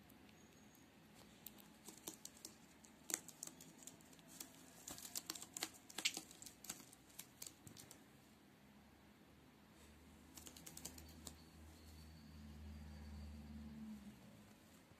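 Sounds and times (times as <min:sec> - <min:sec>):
bird beak tapping: 0:01.4 - 0:08.0, 0:10.4 - 0:11.4.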